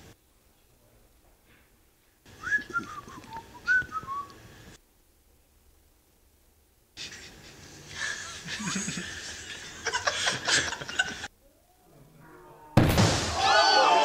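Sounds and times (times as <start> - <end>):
people giggling: 7.0 - 11.3.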